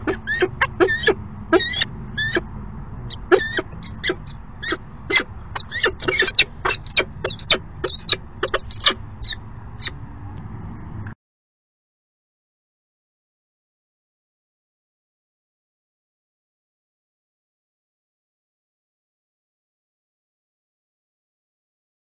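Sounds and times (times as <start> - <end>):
falcons calling: 0.0 - 2.5, 3.1 - 10.0.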